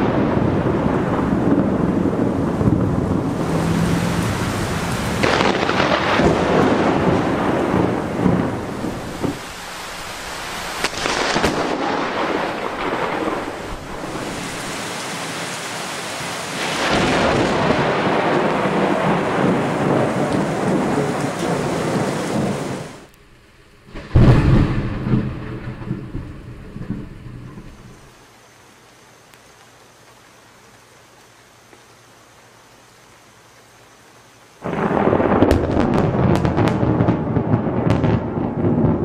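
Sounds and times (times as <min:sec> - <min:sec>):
thunder: 0:00.0 - 0:09.7, 0:10.7 - 0:14.8, 0:16.6 - 0:23.1, 0:23.9 - 0:28.1, 0:34.6 - 0:39.0
heavy rain: 0:00.0 - 0:39.0.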